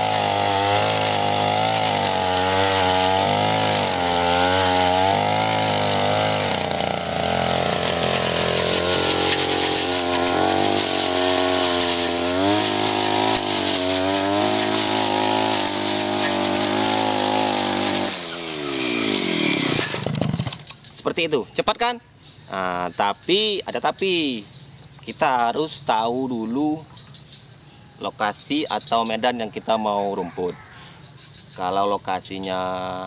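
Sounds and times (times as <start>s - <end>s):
cutter head sweeping through grass: 0.0s - 20.6s
brush cutter engine running: 0.0s - 20.8s.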